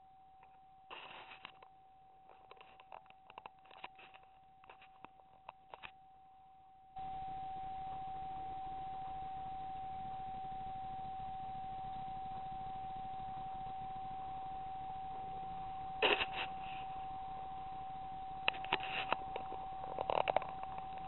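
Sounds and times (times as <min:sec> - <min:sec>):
high-pitched electronic whine: 0:07.0 - 0:21.0
steady hiss: 0:09.0 - 0:21.0.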